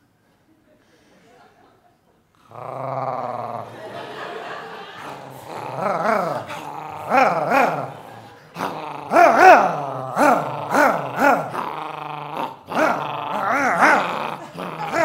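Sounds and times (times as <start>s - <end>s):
man growling low: 2.4s - 15.0s
man imitating dog whines: 9.0s - 11.6s.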